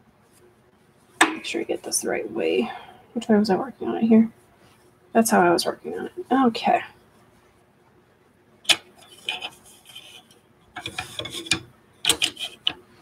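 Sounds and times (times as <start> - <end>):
clicks of wooden dowels and clip: 10.8 - 12.8.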